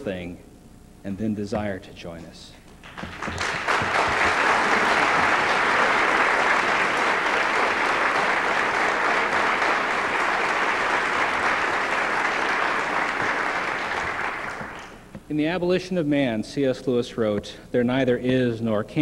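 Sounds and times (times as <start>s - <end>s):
audience applauding: 2.8s - 15.1s.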